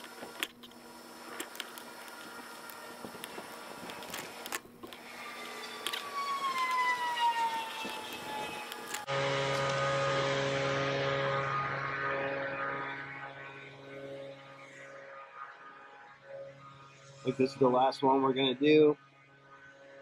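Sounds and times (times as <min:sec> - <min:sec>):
low engine drone: 0:00.0 - 0:20.0
passing engine whine: 0:00.0 - 0:20.0.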